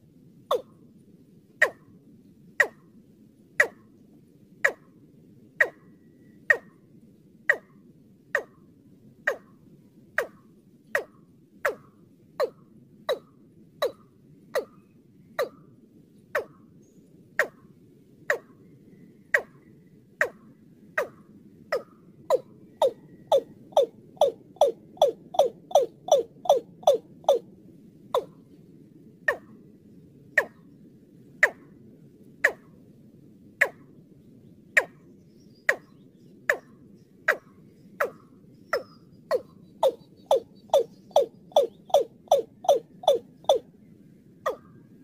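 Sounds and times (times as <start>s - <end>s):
bird calling with sharp notes: 0.5s - 0.7s, 5.6s - 6.7s, 21.0s - 27.4s, 33.6s - 33.9s, 34.7s - 43.7s, 44.5s - 44.8s.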